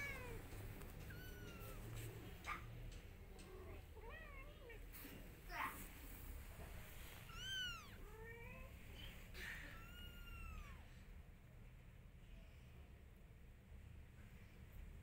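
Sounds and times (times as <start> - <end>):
cat meowing: 0.0 - 2.0, 7.3 - 8.7, 9.8 - 10.9.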